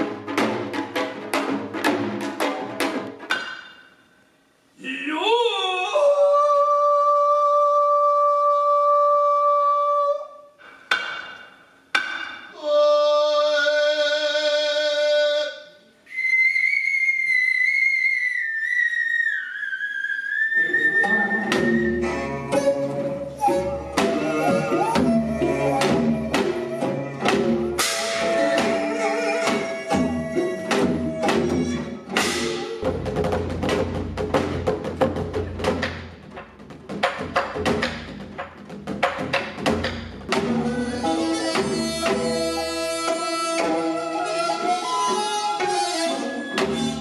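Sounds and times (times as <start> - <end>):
drum and percussion strikes: 0.0 - 4.1, 10.6 - 12.6, 21.4 - 44.3, 45.6 - 47.0
high flute-like melody: 16.1 - 33.0, 40.5 - 47.0
ensemble playing: 20.6 - 33.3.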